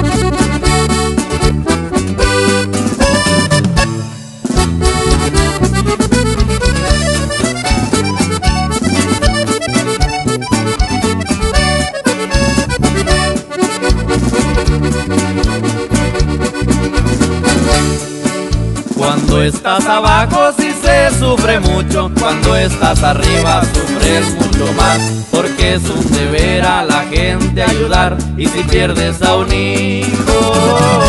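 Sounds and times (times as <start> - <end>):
accordion playing melody: 0.0 - 31.0
bass line: 0.0 - 31.0
steady beat: 0.0 - 31.0.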